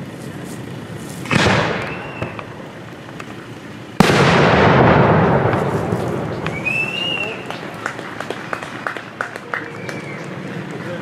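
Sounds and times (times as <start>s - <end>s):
rolling echo rumble: 0.0s - 11.0s
firework shells bursting: 0.6s - 9.2s.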